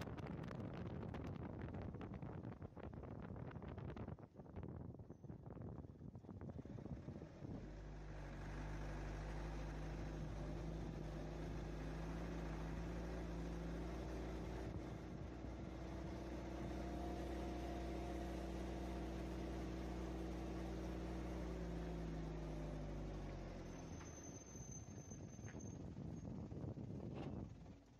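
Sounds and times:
engine humming: 6.5s - 27.9s.

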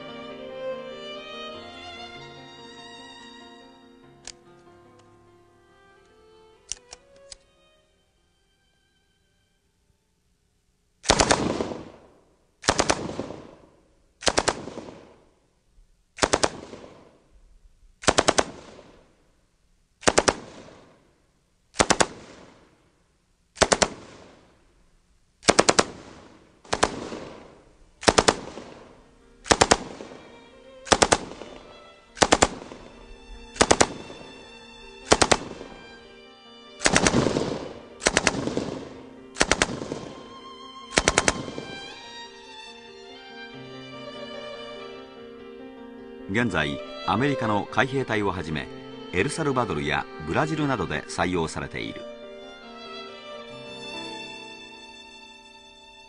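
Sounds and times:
string music: 0.0s - 10.2s, 26.7s - 56.0s
machine gun firing bursts: 11.1s - 11.9s, 12.6s - 13.5s, 14.2s - 15.0s, 16.2s - 17.0s, 18.0s - 19.0s, 20.0s - 20.8s, 21.8s - 22.5s, 23.6s - 24.4s, 25.4s - 28.8s, 29.5s - 30.2s, 30.9s - 31.5s, 32.2s - 32.8s, 33.6s - 34.3s, 35.1s - 35.7s, 36.8s - 40.2s, 40.9s - 41.8s.

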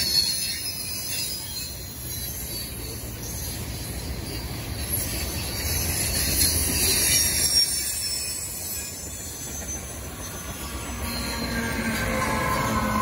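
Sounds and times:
train wheels rumbling on rails: 0.0s - 13.0s
wheels squealing: 0.0s - 13.0s.

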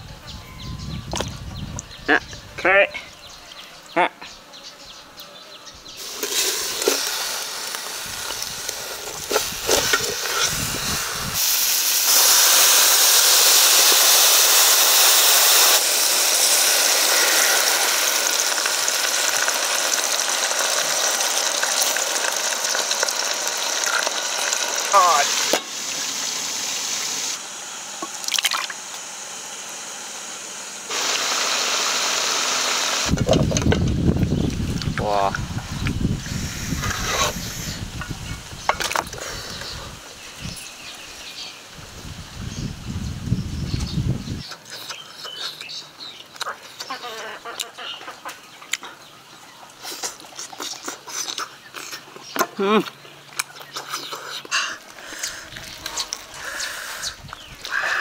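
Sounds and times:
liquid bubbling and spitting: 6.0s - 26.0s, 28.0s - 28.8s
chicken sizzling in a pot: 6.0s - 33.7s.

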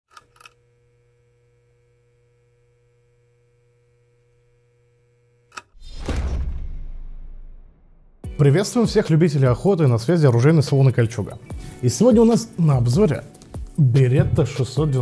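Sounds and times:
hum of thin tones: 0.2s - 5.6s
loud whoosh: 5.8s - 8.2s.

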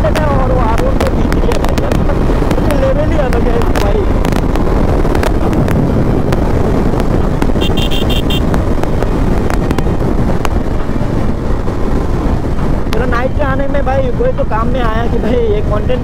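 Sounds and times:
motorcycle engine and road noise: 0.0s - 16.0s
wind on microphone: 0.0s - 16.0s.

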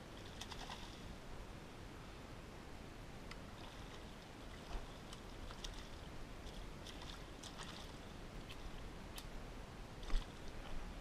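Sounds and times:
small water splashes: 0.0s - 1.1s, 3.4s - 9.3s, 10.0s - 10.8s.

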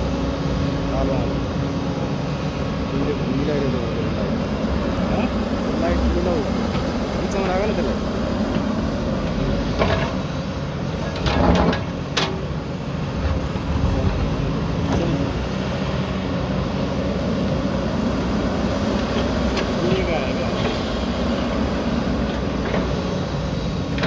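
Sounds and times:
excavator diesel engine under load: 0.0s - 24.0s
sharp clunks and rattles: 8.5s - 10.3s, 11.0s - 12.5s.

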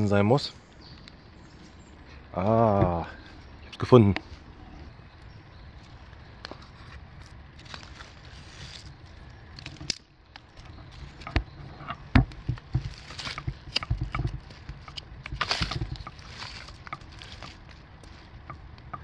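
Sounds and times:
twigs cracking underfoot: 2.7s - 19.0s
footsteps rustling through leaves: 7.5s - 9.3s, 12.8s - 13.7s, 14.3s - 18.4s.

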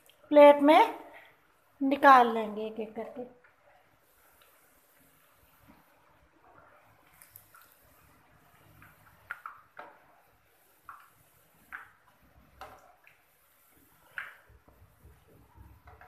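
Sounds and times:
oil sizzling: 3.5s - 16.0s.

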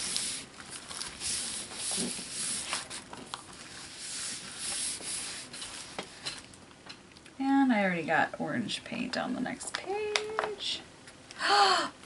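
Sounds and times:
palms rubbing on paper: 0.0s - 0.5s, 1.2s - 3.0s, 3.6s - 6.2s.

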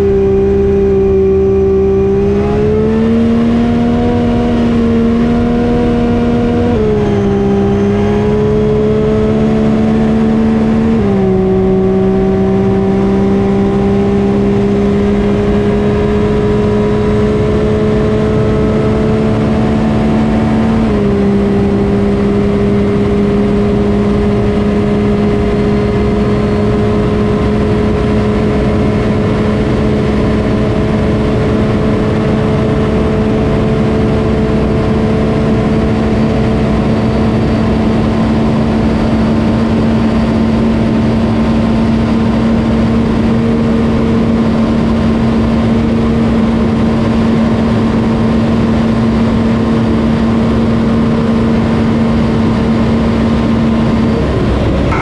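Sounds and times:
race engine at high rpm: 0.0s - 55.0s
heavy wind rush: 52.2s - 55.0s.

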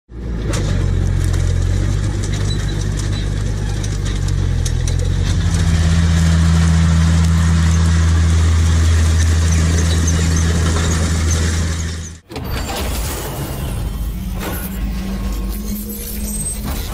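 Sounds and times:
tractor engine droning under load: 0.1s - 16.9s
clicks and rattles: 0.4s - 6.3s.

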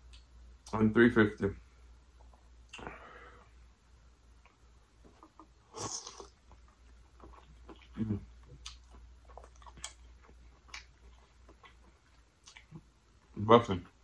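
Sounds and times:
chewing with lip smacks: 4.4s - 13.3s.

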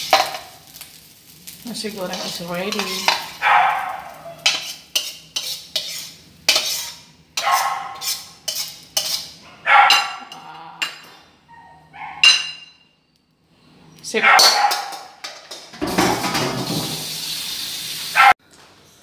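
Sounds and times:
metal spatula scraping wok: 1.9s - 3.4s, 4.0s - 9.4s.

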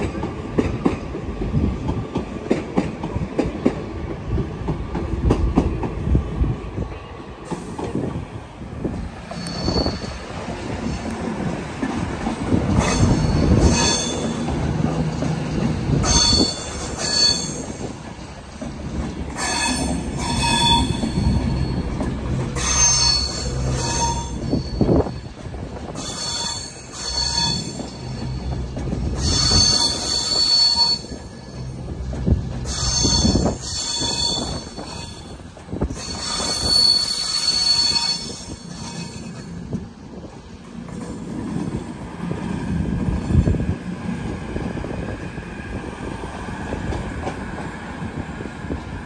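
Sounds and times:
low rumble of moving train: 0.0s - 49.0s
train wheels squealing on rails: 5.0s - 49.0s.

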